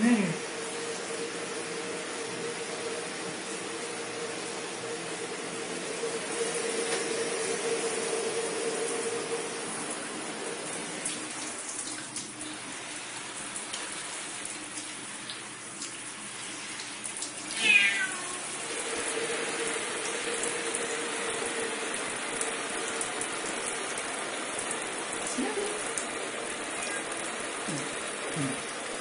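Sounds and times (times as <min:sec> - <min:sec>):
cat meowing: 0:17.6 - 0:18.6, 0:26.7 - 0:27.2.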